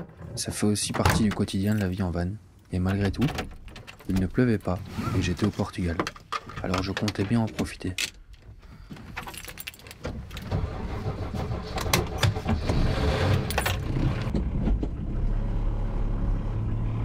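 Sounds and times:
keys jangling: 8.0s - 10.4s
van engine starting and idling: 10.0s - 16.8s.

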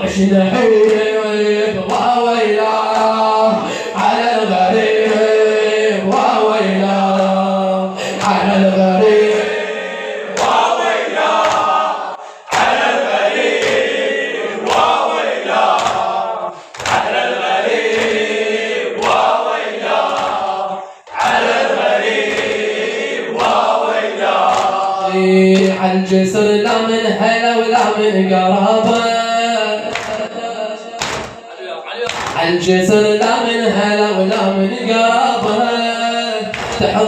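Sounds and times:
men singing a lament: 0.0s - 31.5s, 32.2s - 37.0s
hands slapping chests: 9.2s - 9.6s, 10.3s - 11.9s, 12.5s - 18.4s, 19.0s - 23.7s, 24.3s - 24.9s, 25.6s - 25.8s, 29.9s - 30.3s, 31.0s - 31.4s, 32.0s - 32.4s, 36.5s - 36.9s.

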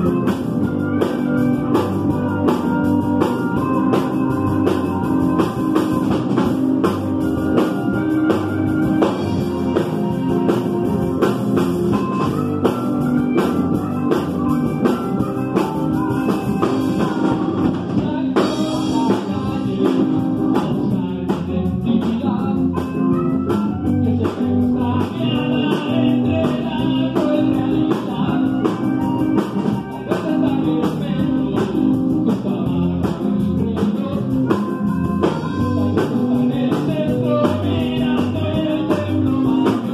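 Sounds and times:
wavering lead melody: 0.0s - 21.2s, 34.2s - 39.9s
drum kit: 0.0s - 39.9s
electric bass: 0.0s - 39.9s
electric guitar: 0.0s - 39.9s.

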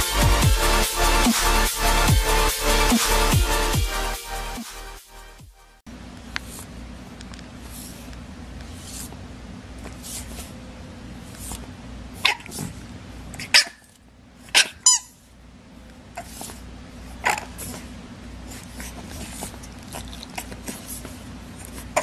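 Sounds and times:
steady low hum: 5.8s - 22.0s.

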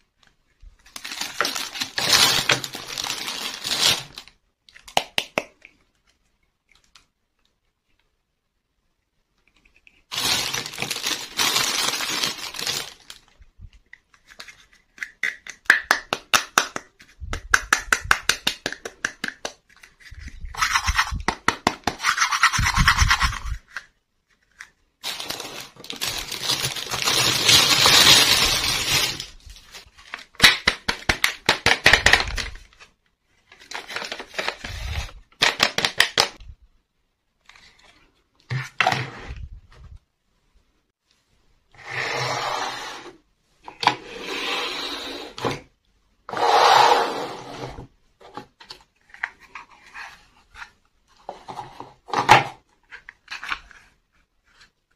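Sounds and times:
plastic wrap crinkling: 0.8s - 4.4s, 10.1s - 13.4s, 25.0s - 31.4s.

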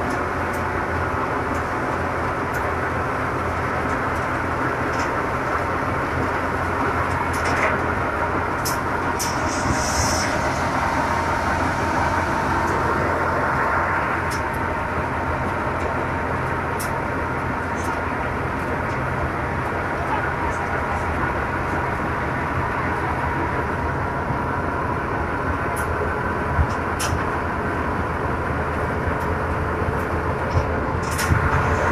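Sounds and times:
brief hiss: 9.2s - 11.9s.

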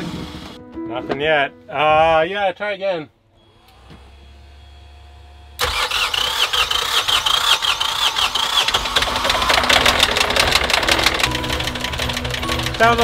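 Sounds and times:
diesel engine running rough: 5.5s - 13.0s.

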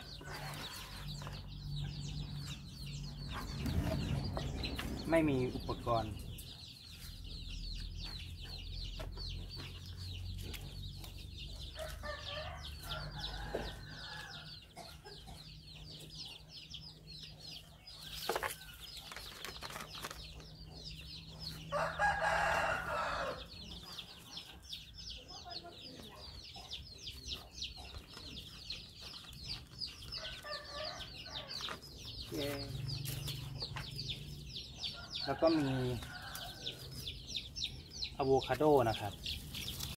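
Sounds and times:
rooster crowing: 21.7s - 23.6s.

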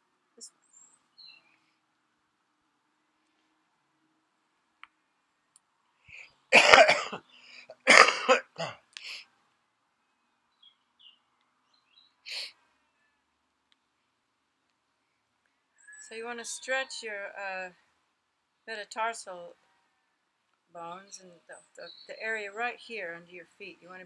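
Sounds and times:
person coughing: 6.6s - 7.2s, 7.9s - 9.2s.

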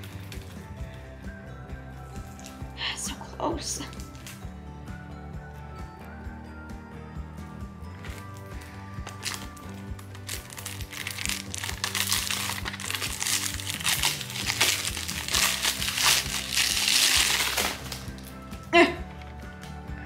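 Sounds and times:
plastic wrap crinkling: 8.1s - 19.4s.

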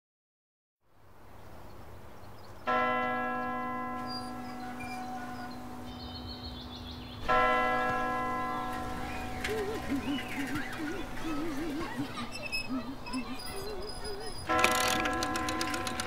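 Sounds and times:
church bell ringing: 2.7s - 12.4s, 13.0s - 16.0s.

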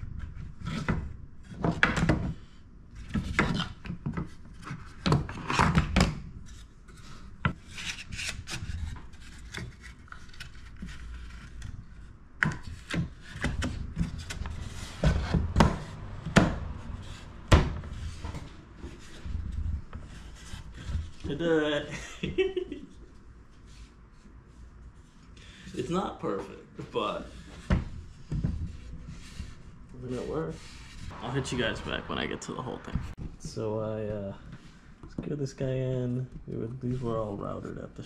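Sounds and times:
wood scraping against wood: 27.2s - 32.2s.

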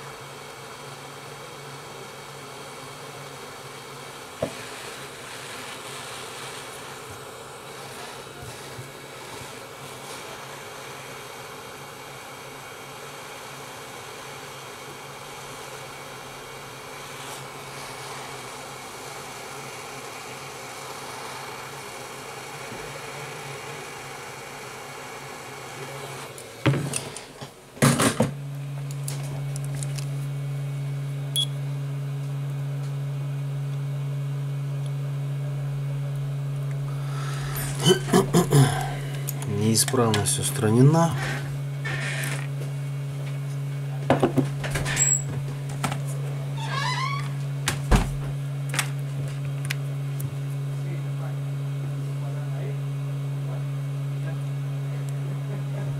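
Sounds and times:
loud steady low hum: 27.9s - 55.9s
hot air gun blowing: 36.9s - 39.4s.

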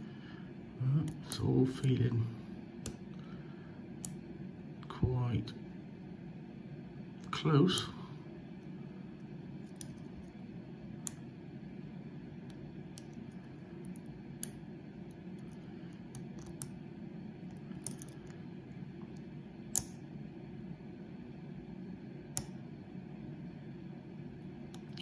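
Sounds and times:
steady low hum: 0.0s - 25.0s
lock pick metallic clicks: 17.7s - 18.3s.

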